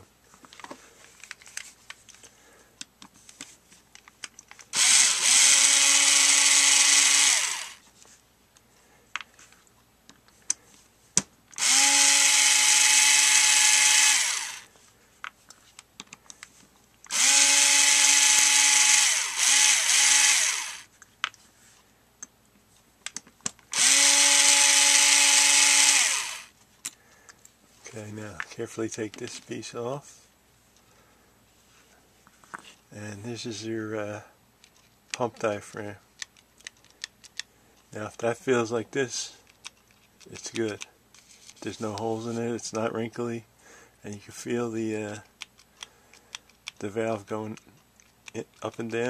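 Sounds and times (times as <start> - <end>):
cordless drill whirring: 4.7 - 7.8, 11.6 - 14.7, 17.1 - 20.9, 23.7 - 26.5.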